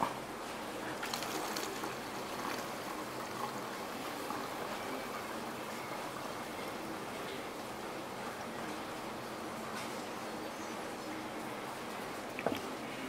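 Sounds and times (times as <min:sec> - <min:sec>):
liquid trickling through a funnel: 0:00.7 - 0:09.4.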